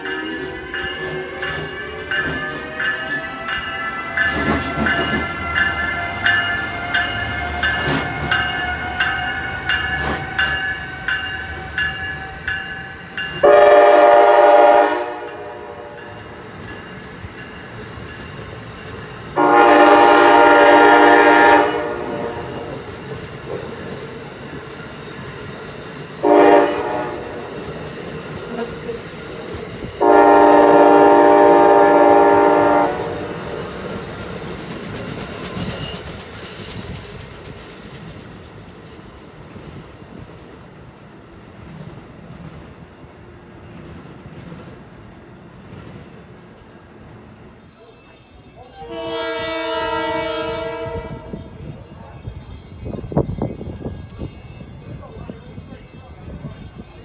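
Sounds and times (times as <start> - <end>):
electric locomotive whine: 0.0 - 57.0
train horn blasts: 13.4 - 16.0, 19.4 - 22.8, 26.2 - 27.4, 30.0 - 33.4, 48.7 - 51.6
wheels clicking over rail joints: 22.5 - 26.2, 33.4 - 39.8.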